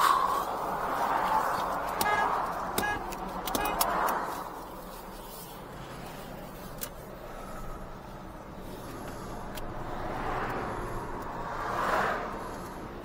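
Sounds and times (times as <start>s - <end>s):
highway traffic rushing past: 0.0s - 13.0s
short car horn taps: 2.0s - 3.8s.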